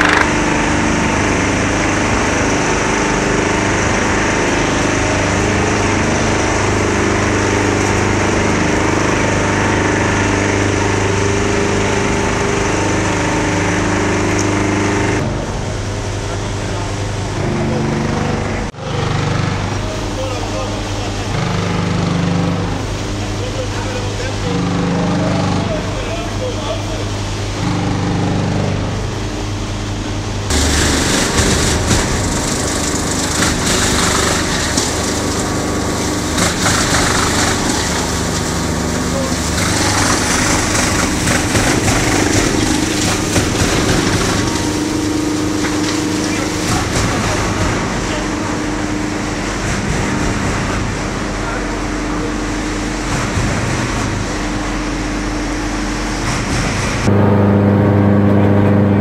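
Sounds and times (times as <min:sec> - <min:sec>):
wood splintering in chipper: 0:00.0 - 0:15.3, 0:30.5 - 0:57.1
chipper machine hum: 0:00.0 - 0:59.0.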